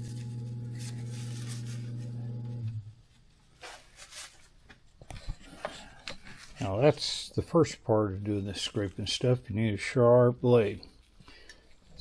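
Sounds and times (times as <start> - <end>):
grinder motor humming: 0.0 - 2.9.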